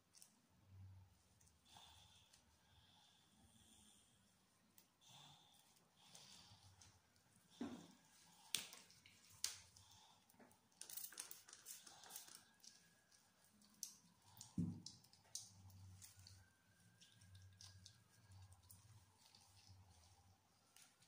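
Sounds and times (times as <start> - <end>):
faint clicks and taps: 6.8 - 18.0.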